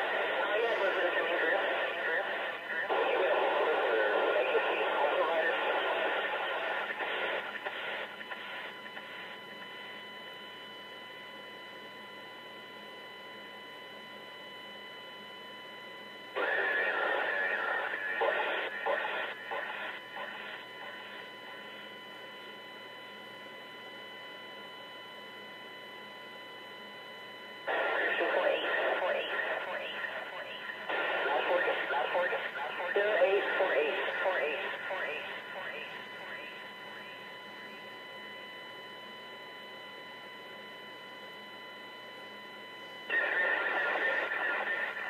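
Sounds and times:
police radio transmission: 0.0s - 8.6s, 16.4s - 21.2s, 27.7s - 37.3s, 43.1s - 45.0s
steady radio hiss: 0.0s - 9.6s, 16.3s - 22.6s, 27.6s - 38.2s, 42.8s - 45.0s
faint steady tones: 0.0s - 45.0s.

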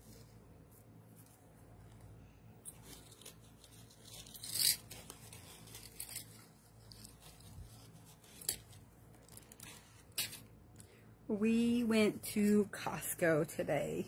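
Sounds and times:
jewelry rustling scrape: 0.0s - 10.5s.

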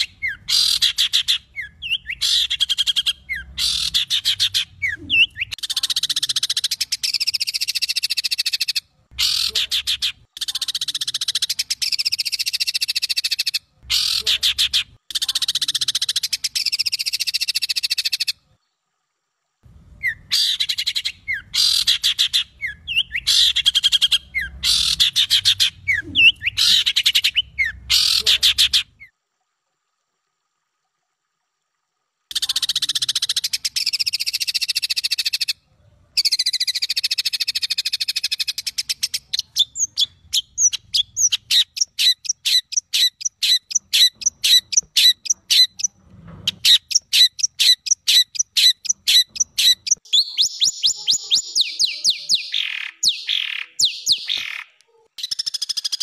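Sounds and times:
songbird trilled phrases: 0.0s - 18.3s, 20.0s - 29.1s, 32.3s - 35.6s, 36.2s - 46.0s, 46.8s - 56.0s.

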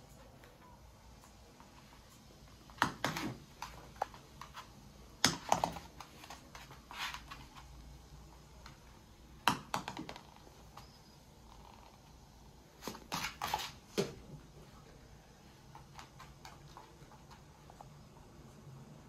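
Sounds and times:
dog claws clicking on hard floor: 2.7s - 7.7s, 15.7s - 17.8s.

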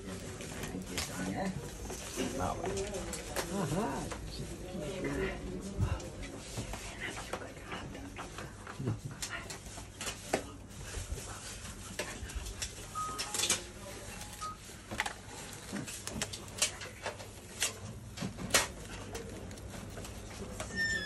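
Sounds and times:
plastic gloves rustling: 0.0s - 5.8s, 13.6s - 20.6s.

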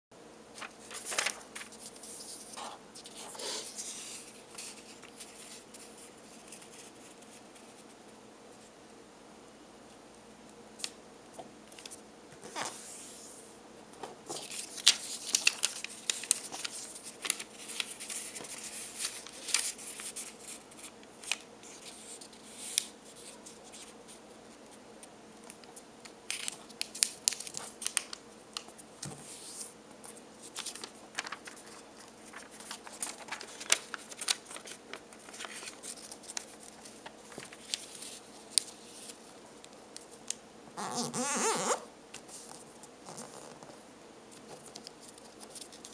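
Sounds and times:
paper crinkling and crackling: 0.6s - 7.8s, 14.3s - 24.0s, 25.4s - 40.3s, 42.2s - 45.9s.

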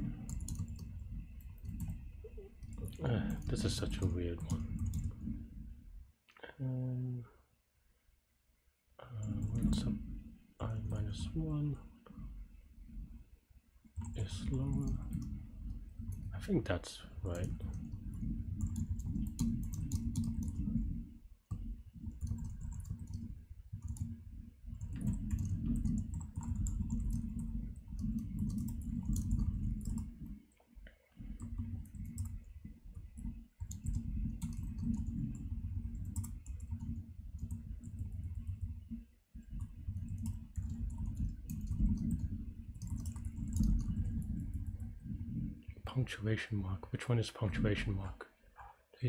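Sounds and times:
fast typing on keyboard: 0.0s - 5.5s, 9.2s - 10.0s, 10.6s - 11.4s, 14.0s - 30.5s, 31.2s - 45.5s.

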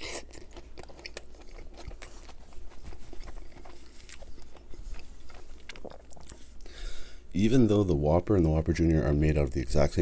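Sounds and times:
chewing with mouth clicks: 0.0s - 6.7s.

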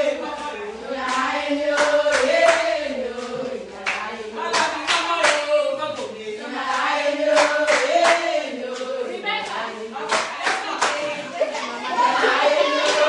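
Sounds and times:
women singing together: 0.0s - 13.0s
hand clapping: 1.0s - 11.3s.

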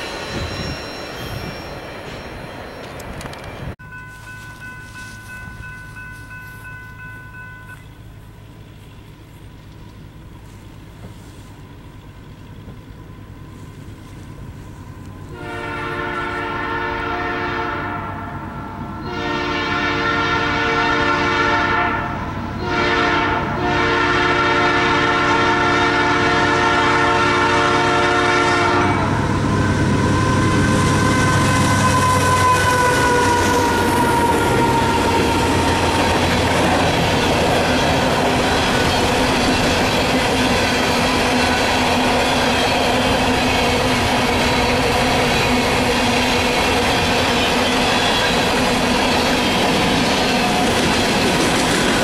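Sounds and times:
locomotive engine rumble: 0.0s - 20.6s, 22.0s - 52.0s
train wheels on rails: 0.0s - 52.0s
locomotive horn blasts: 15.3s - 36.7s.

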